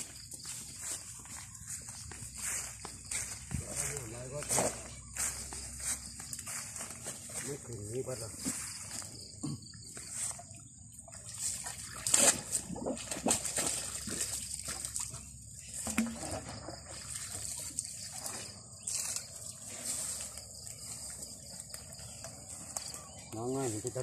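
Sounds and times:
water trickling and sloshing: 0.0 - 24.0
water splashes: 10.1 - 20.3.

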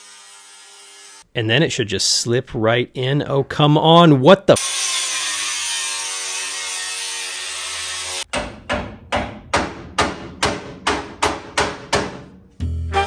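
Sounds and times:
angle grinder cutting steel: 0.0 - 1.3, 4.6 - 8.3.

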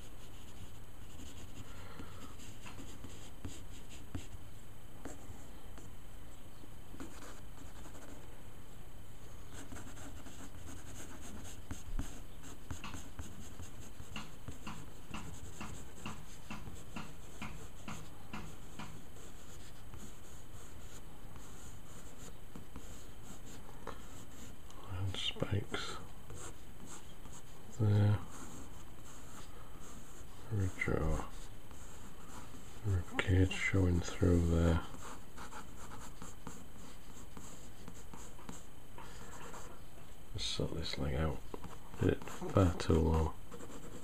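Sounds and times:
pencil scratching on paper: 9.5 - 27.6, 28.2 - 33.4, 34.0 - 39.7, 41.6 - 44.0.

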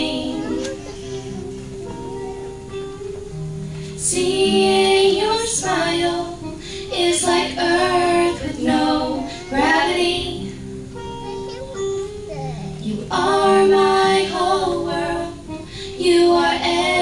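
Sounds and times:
woman singing: 0.0 - 0.9, 4.0 - 10.6, 12.8 - 17.0
acoustic guitars: 0.0 - 17.0.

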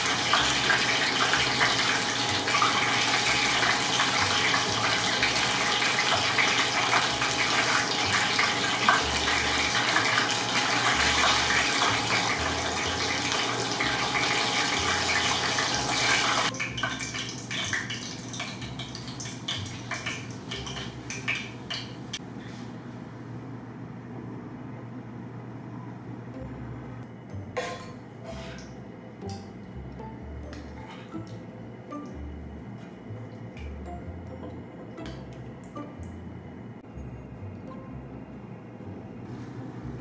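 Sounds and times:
hot oil sizzling and crackling: 0.0 - 22.2.

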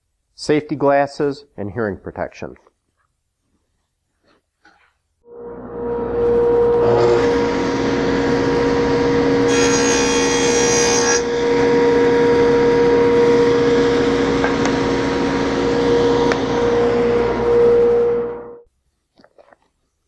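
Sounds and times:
saw cutting plywood: 6.8 - 11.8.

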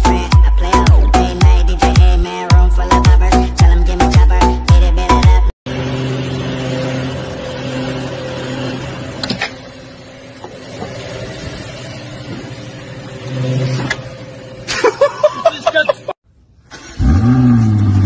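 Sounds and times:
low mechanical hum: 5.7 - 16.6.

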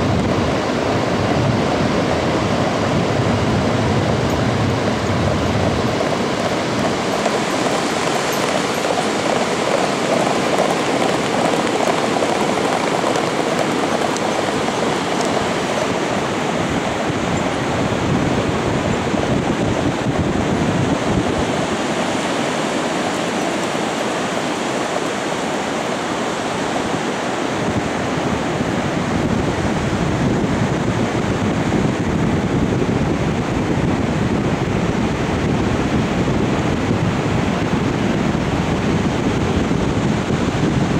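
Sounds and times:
wind on microphone: 0.0 - 40.9.

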